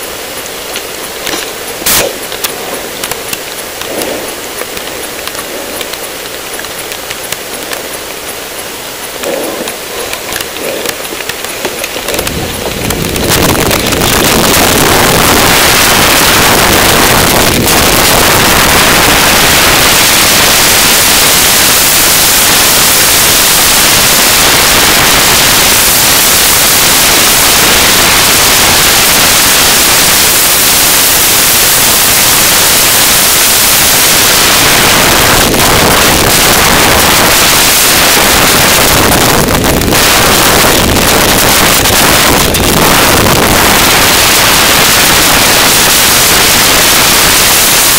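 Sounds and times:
wind buffeting microphone: 9.2 - 29.2.

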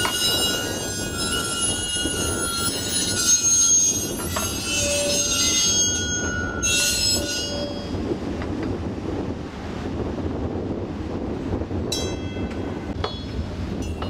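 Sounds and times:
streetcar wheels squealing on rails: 0.0 - 8.3
streetcar low rumble: 0.0 - 14.0.

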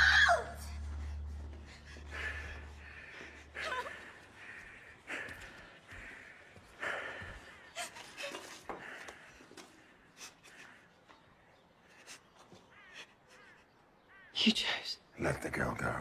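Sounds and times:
low drone: 0.0 - 6.3
person breathing raggedly and gasping: 0.8 - 11.0.

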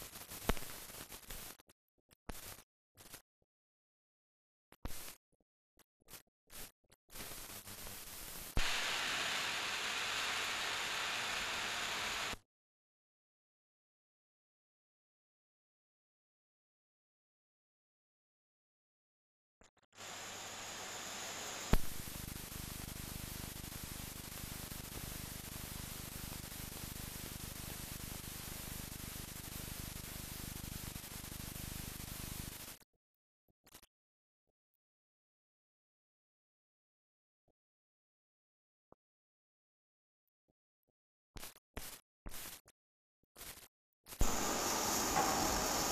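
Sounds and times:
film soundtrack hiss and crackle: 0.0 - 1.7, 2.3 - 3.2, 4.8 - 5.2, 6.1 - 12.4, 20.0 - 32.8, 43.4 - 45.9
short bursts of noise: 8.6 - 12.4, 43.4 - 45.9
steam hissing: 8.6 - 12.4, 20.0 - 21.8, 44.2 - 45.9.

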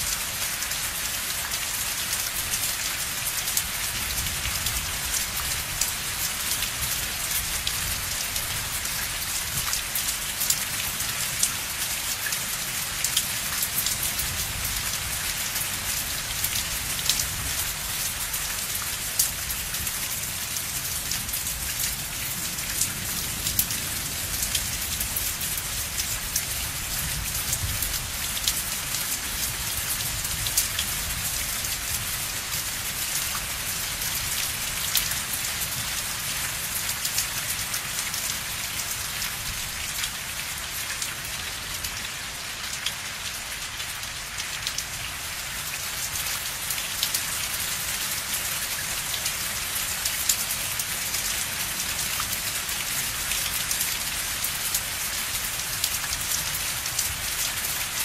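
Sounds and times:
rain falling: 0.0 - 58.0.

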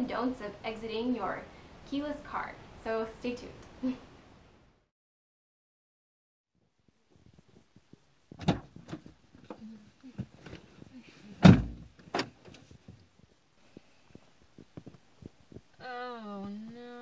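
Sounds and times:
heavy thump: 8.3 - 9.6, 11.4 - 13.0
clicks and knocks in car cabin: 8.4 - 9.6, 11.4 - 13.0.

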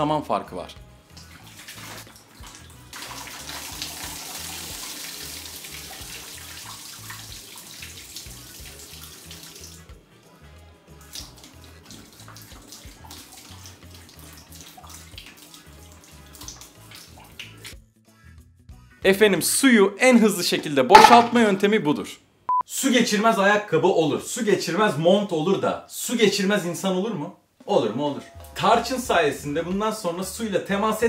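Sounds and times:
water pouring into a sink: 1.2 - 10.0, 11.0 - 17.7
background music with low beat: 20.9 - 21.4, 28.1 - 30.4.

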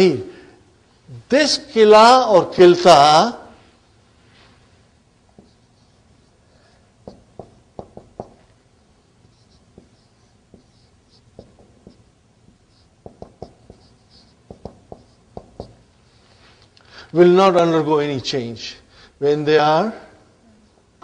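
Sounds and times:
marker tapping on whiteboard: 7.0 - 8.6, 9.3 - 15.9
marker squeaking on whiteboard: 7.0 - 15.9.

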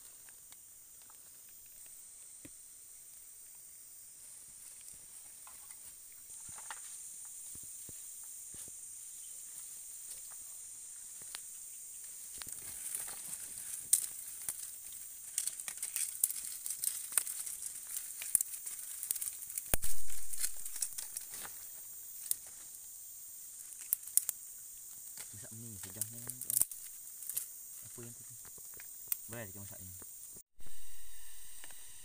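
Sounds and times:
fire of sticks crackling and popping: 0.0 - 2.6, 9.5 - 30.2
steady high hiss: 0.0 - 32.0
sticks and dry leaves handled: 12.0 - 22.8, 23.6 - 30.0.

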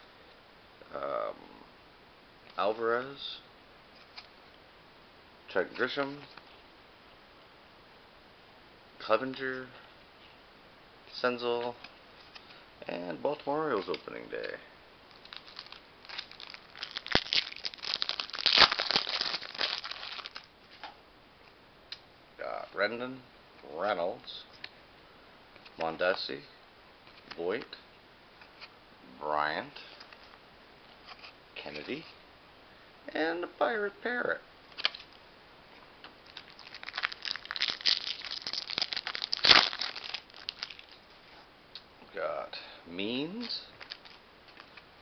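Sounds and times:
wrapper crinkling: 15.1 - 20.5, 36.2 - 41.0, 43.7 - 44.8.

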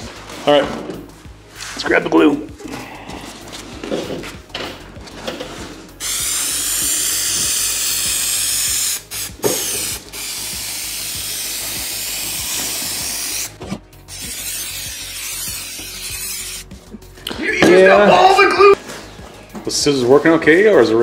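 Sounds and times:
aerosol spray hissing: 6.0 - 16.8.

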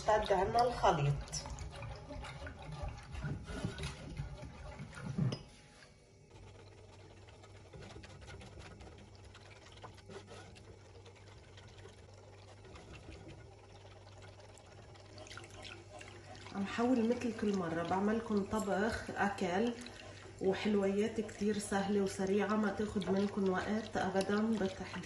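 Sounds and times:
whisk stirring liquid in pan: 0.0 - 25.0.

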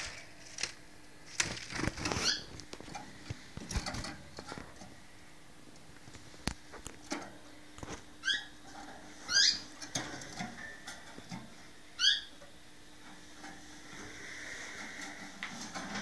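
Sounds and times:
canary chirping: 2.1 - 2.6, 8.2 - 8.6, 9.2 - 9.7, 12.0 - 12.4.

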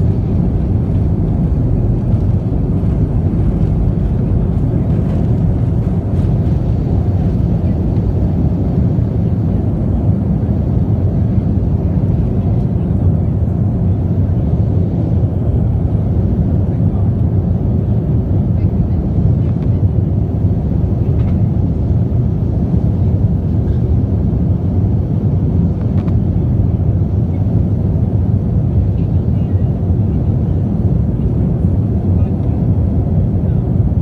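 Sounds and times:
jet engines low rumble: 0.0 - 34.0.

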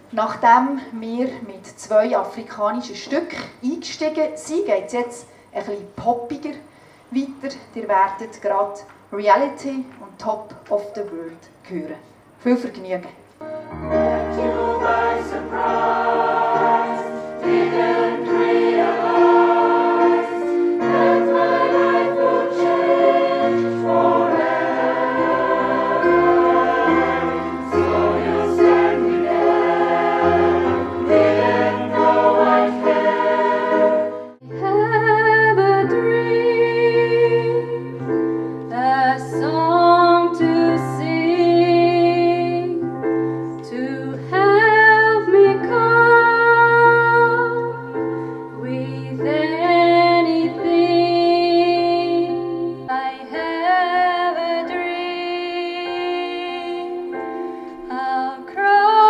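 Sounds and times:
held low accompaniment note: 13.4 - 18.1
choir singing: 13.4 - 34.4
woman singing into a microphone: 34.5 - 37.8, 43.6 - 47.8, 48.6 - 59.0.

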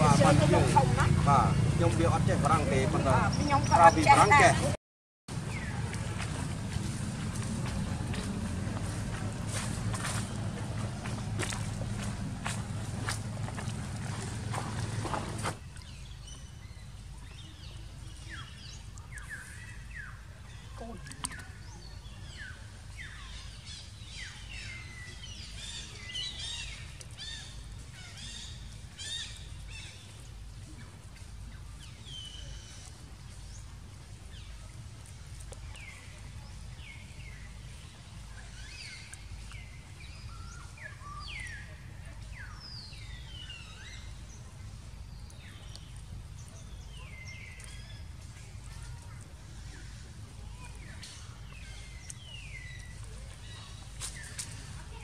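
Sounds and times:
low background rumble: 0.0 - 25.8
birds chirping: 0.0 - 55.0.

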